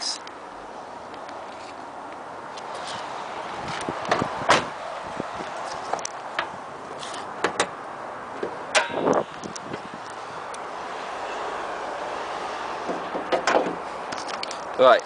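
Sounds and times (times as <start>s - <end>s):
car door and latch clicks: 3.7s - 4.7s, 5.8s - 7.8s, 12.9s - 14.4s.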